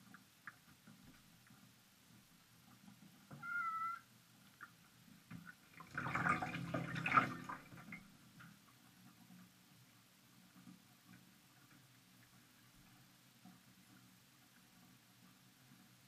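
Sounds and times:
cat meowing: 0:03.4 - 0:04.0.

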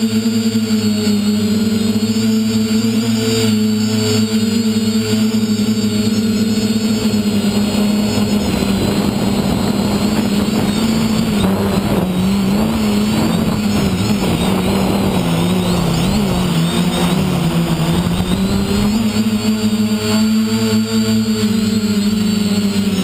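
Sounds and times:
drone motors humming: 0:00.0 - 0:23.0
wind noise: 0:05.0 - 0:20.2.

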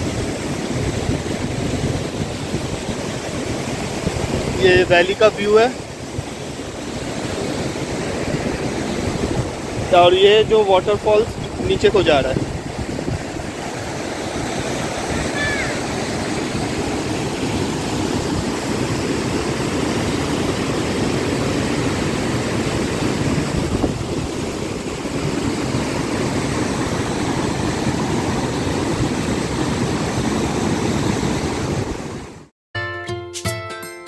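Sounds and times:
waterfall roaring: 0:00.0 - 0:32.4
music: 0:32.7 - 0:34.0.

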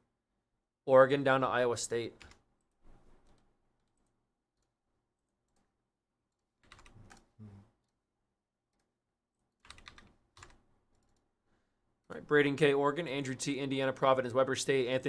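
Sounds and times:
computer keyboard typing: 0:06.3 - 0:07.3, 0:09.3 - 0:11.2.

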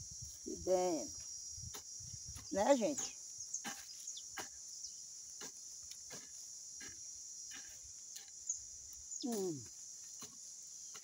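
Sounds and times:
insects droning: 0:00.0 - 0:11.0
hoe chopping into dry soil: 0:01.6 - 0:04.6, 0:05.3 - 0:08.4, 0:10.2 - 0:11.0.

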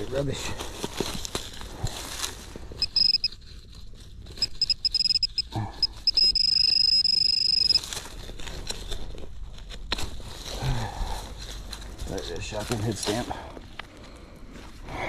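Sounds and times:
metal detector beeping: 0:02.8 - 0:03.4, 0:04.4 - 0:07.8.

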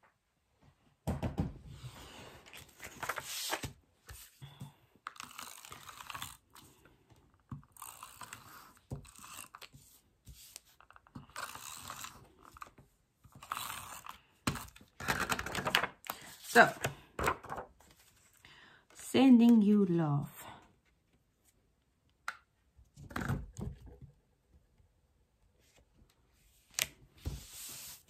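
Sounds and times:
card rustling and sliding: 0:01.7 - 0:04.4, 0:07.8 - 0:18.4, 0:25.6 - 0:28.0.

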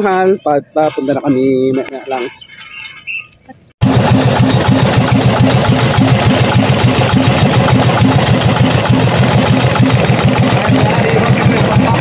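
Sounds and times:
boat engine running: 0:03.8 - 0:12.0.

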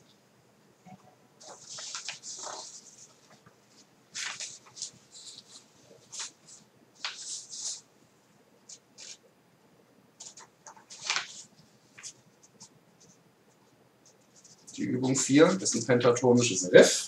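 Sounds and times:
paper sheets rustling: 0:01.4 - 0:07.9, 0:08.6 - 0:09.2, 0:10.2 - 0:12.7.

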